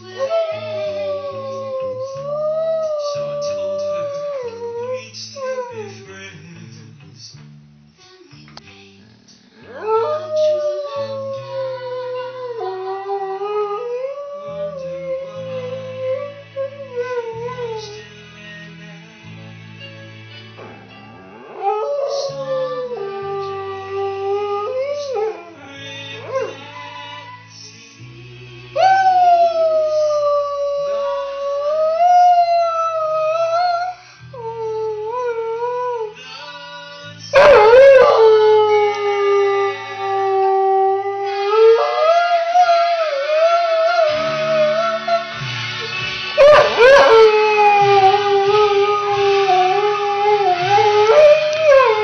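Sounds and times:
dog howling: 0:00.0 - 0:06.1, 0:09.7 - 0:18.0, 0:21.2 - 0:27.3, 0:28.8 - 0:36.2, 0:37.0 - 0:45.4, 0:46.4 - 0:52.0
music: 0:00.0 - 0:52.0.

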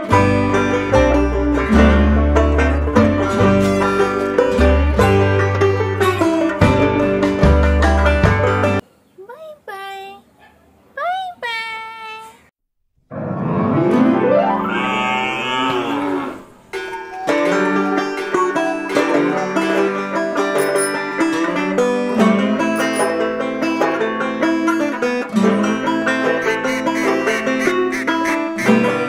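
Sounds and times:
plucked-string instrumental music: 0:00.0 - 0:08.8, 0:13.1 - 0:14.8, 0:16.6 - 0:29.0
cow mooing: 0:14.5 - 0:18.7.

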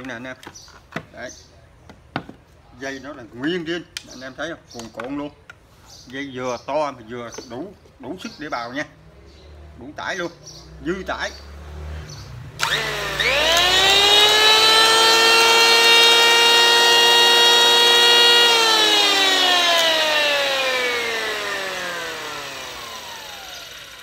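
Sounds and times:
electric hand planer motor whine: 0:12.6 - 0:24.0.

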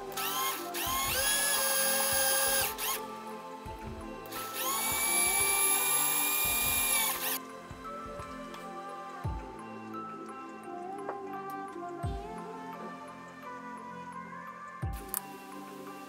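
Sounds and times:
background music: 0:00.0 - 0:16.0
mini drill whining through plastic: 0:00.1 - 0:03.0, 0:04.3 - 0:07.4.

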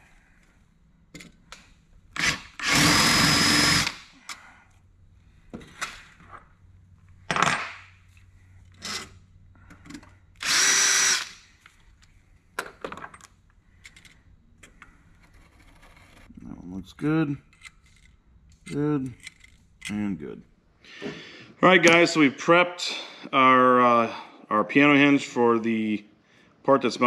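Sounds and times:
cordless drill spinning: 0:02.2 - 0:04.0, 0:10.4 - 0:11.6.

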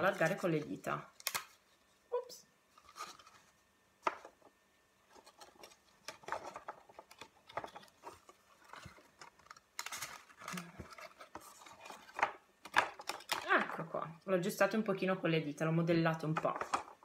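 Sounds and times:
cardstock rustling and crinkling: 0:00.0 - 0:02.0, 0:02.7 - 0:14.0, 0:16.3 - 0:17.0.

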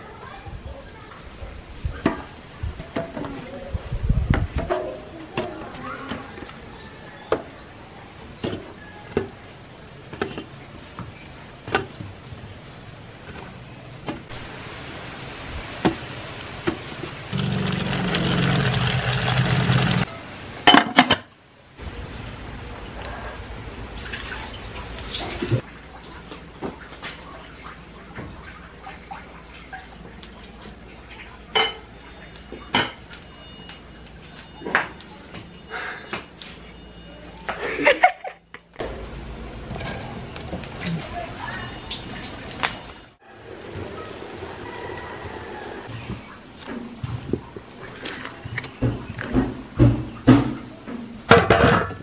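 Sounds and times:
water running into pot: 0:17.3 - 0:20.1.

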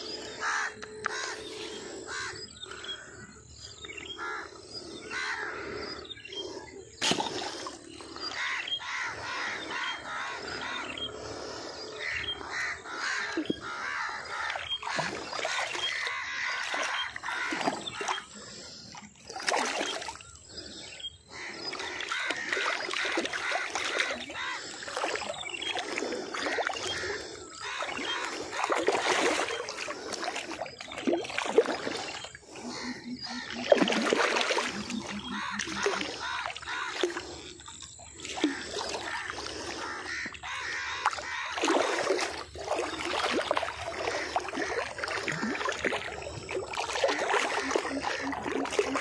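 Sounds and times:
birds chirping: 0:00.0 - 0:49.0
fish splashing in water: 0:07.0 - 0:09.8, 0:13.0 - 0:20.4, 0:21.5 - 0:49.0.

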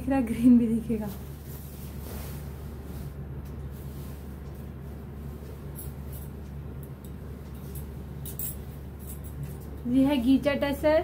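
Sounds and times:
steady low hum: 0:00.0 - 0:11.0
fabric rustling: 0:00.8 - 0:06.2.

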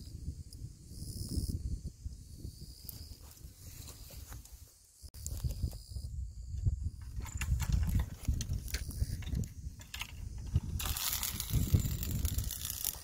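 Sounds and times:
wind rumble on microphone: 0:00.0 - 0:13.0
fishing rods rustling and clicking: 0:02.8 - 0:13.0.

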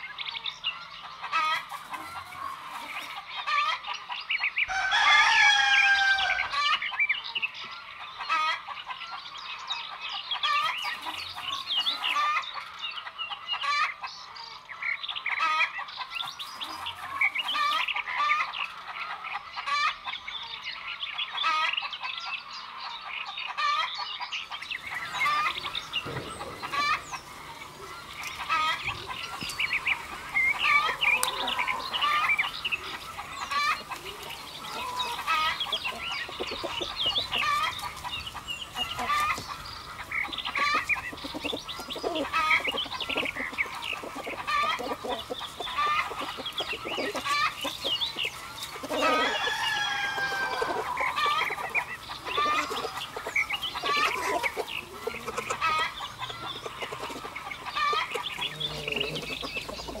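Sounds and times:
chickens clucking: 0:00.0 - 1:00.0
rooster crowing: 0:04.7 - 0:06.8, 0:25.0 - 0:37.7, 0:48.8 - 0:53.0.

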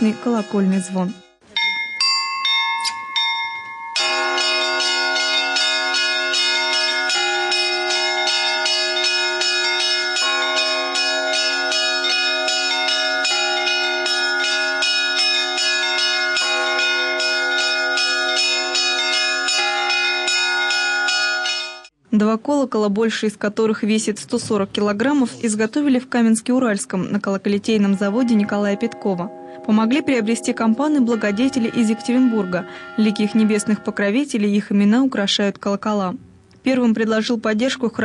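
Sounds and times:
church bells pealing: 0:00.0 - 0:21.9, 0:27.7 - 0:34.4.

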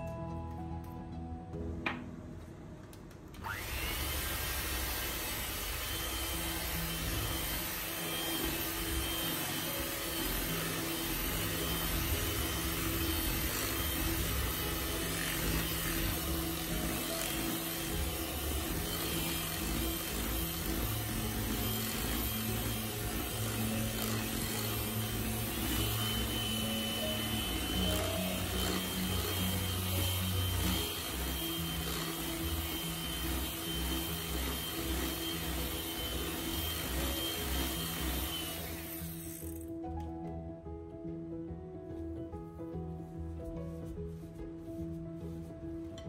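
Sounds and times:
slow background music: 0:00.0 - 0:46.0
electric hand mixer running: 0:03.4 - 0:39.8.

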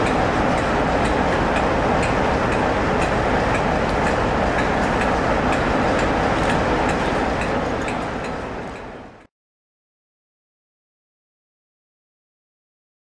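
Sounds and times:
diesel locomotive engine running: 0:00.0 - 0:09.3.

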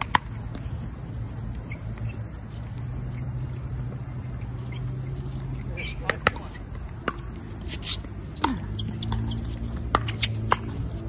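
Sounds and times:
paddles hitting plastic ball: 0:05.6 - 0:11.0.

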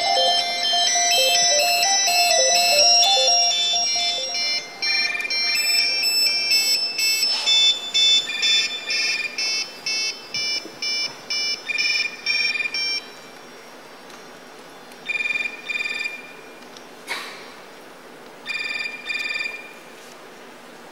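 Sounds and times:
mobile phones ringing: 0:00.0 - 0:13.2.

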